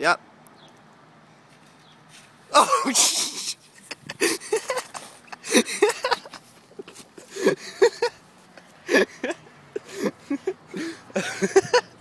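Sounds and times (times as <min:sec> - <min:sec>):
person laughing: 0:02.6 - 0:08.2, 0:08.8 - 0:12.0.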